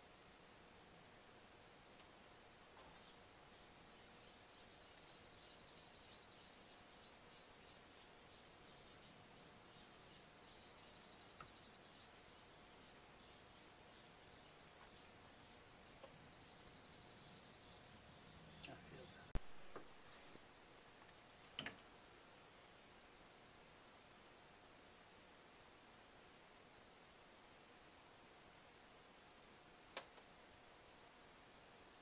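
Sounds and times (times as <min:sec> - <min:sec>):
faint steady hum: 0:00.0 - 0:32.0
insect chirring: 0:02.8 - 0:19.3.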